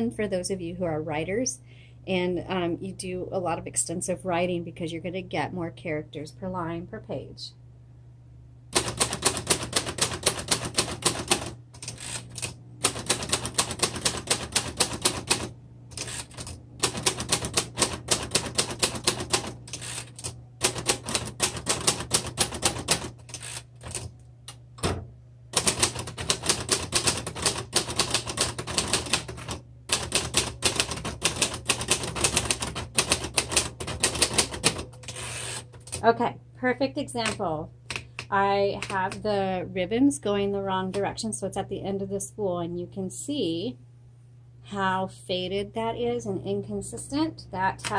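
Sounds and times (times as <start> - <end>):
manual typewriter typing: 8.7 - 24.1, 25.5 - 36.0.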